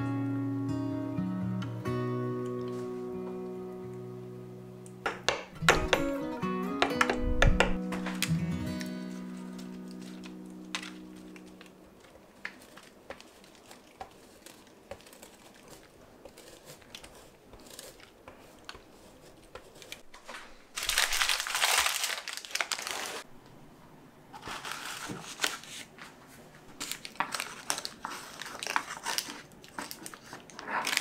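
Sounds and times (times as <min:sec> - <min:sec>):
paper crinkling and rustling: 0:08.0 - 0:23.3, 0:24.4 - 0:31.0.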